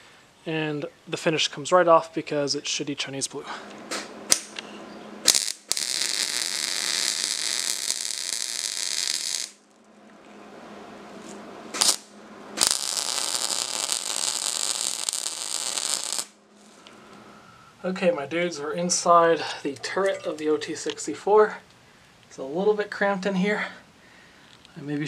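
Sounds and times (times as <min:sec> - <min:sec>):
arc welding sizzling hiss: 0:05.2 - 0:09.6, 0:11.2 - 0:17.0.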